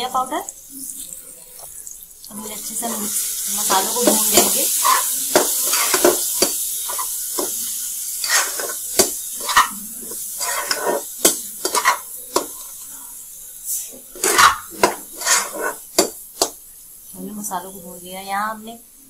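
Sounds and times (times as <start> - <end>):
masala sizzling in oil: 0.0 - 19.0
spatula scraping and tapping pan: 2.8 - 12.8, 14.0 - 16.6.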